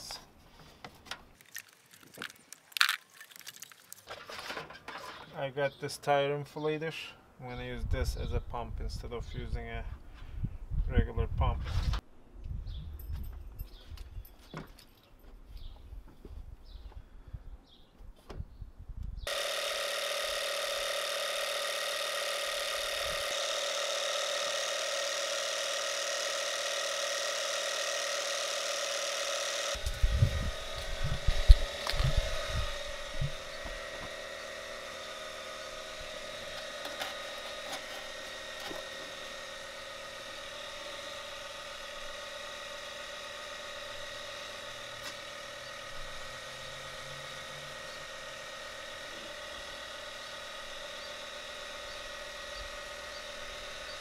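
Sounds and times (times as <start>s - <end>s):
small air compressor buzzing: 19.2s - 54.0s.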